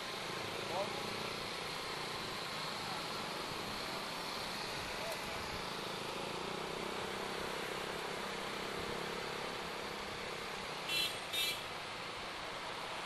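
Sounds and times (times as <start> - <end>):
scooter engine riding: 0.0 - 11.5
motorbike traffic: 0.0 - 13.0
short horn beeps: 10.9 - 11.6.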